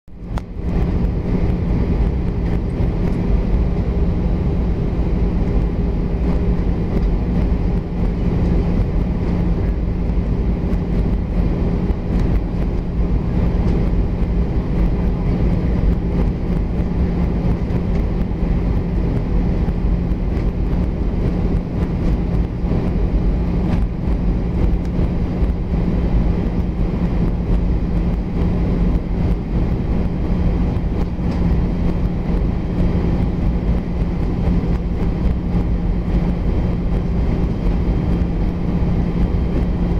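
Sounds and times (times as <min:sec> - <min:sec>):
low hum: 0:00.0 - 0:39.9
jet engines droning: 0:00.1 - 0:39.9
rushing airflow: 0:00.1 - 0:39.9.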